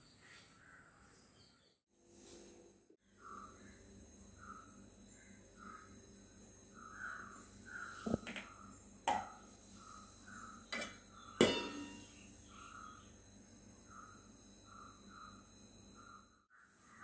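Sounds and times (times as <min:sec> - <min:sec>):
faint chirping: 0:03.0 - 0:17.0
metal lid clinking on pot: 0:10.7 - 0:12.1.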